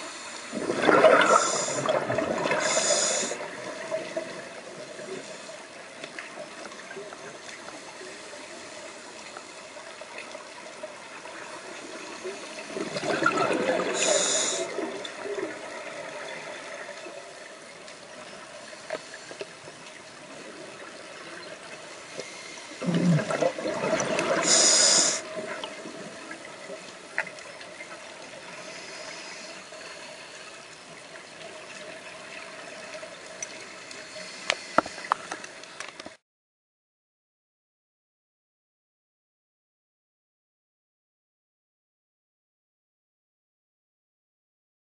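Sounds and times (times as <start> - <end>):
steady underwater hiss: 0.0 - 36.2
diver exhaling bubbles: 0.5 - 3.4, 22.8 - 25.2.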